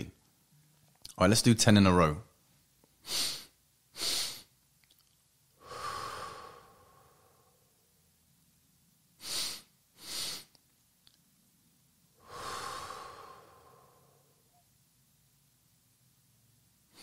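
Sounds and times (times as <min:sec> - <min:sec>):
sharp nasal inhales: 0:03.0 - 0:04.5, 0:05.6 - 0:07.7, 0:09.2 - 0:10.6, 0:12.2 - 0:14.4
long exhale through the mouth: 0:05.6 - 0:07.7, 0:12.2 - 0:14.4.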